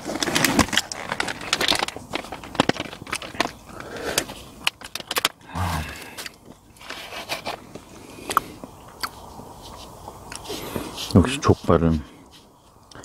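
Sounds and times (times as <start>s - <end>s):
packaging clicks and scrapes: 0.0s - 5.4s
person biting and chewing: 8.2s - 9.3s.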